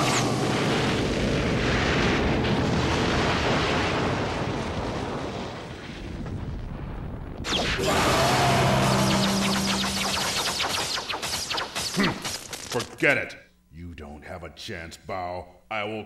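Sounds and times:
cartoon explosion blast: 0:00.0 - 0:12.4
loud burst: 0:00.0 - 0:12.8.

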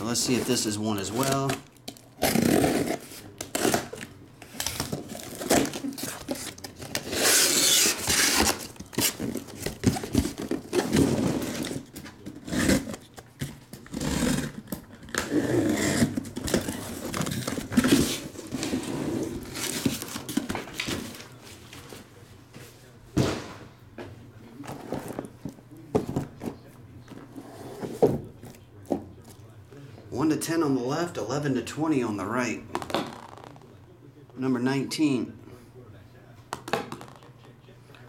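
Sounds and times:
cardboard scraping and rustling: 0:02.2 - 0:22.0.

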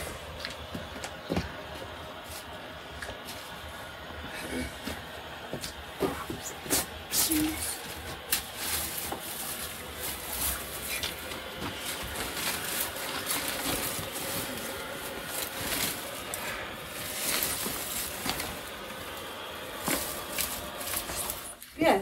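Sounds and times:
dry brushwood rustling and crackling: 0:07.2 - 0:21.6.

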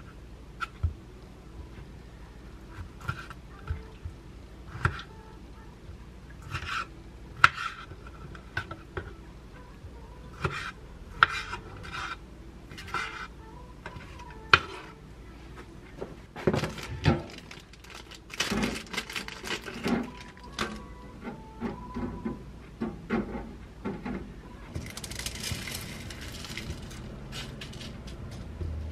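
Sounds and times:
knife slicing fruit on board: 0:06.4 - 0:07.9
food rustling and clatter: 0:16.4 - 0:20.9, 0:24.8 - 0:28.5.

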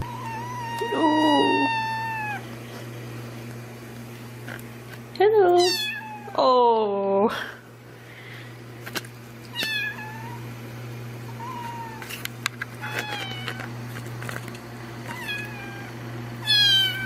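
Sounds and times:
kitten meowing: 0:00.0 - 0:02.4, 0:05.6 - 0:06.4, 0:09.5 - 0:10.4, 0:11.4 - 0:12.0, 0:15.1 - 0:17.0.

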